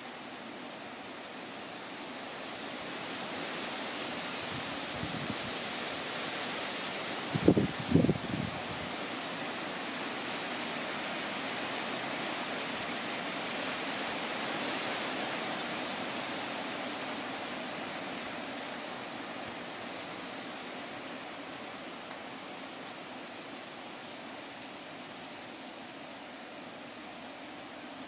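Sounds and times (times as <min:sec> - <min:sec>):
outdoor background hiss: 0:00.0 - 0:28.0.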